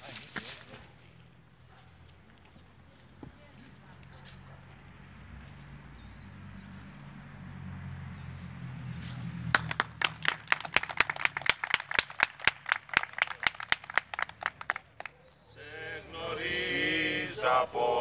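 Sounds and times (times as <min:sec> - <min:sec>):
hands clapping: 0:09.5 - 0:15.2.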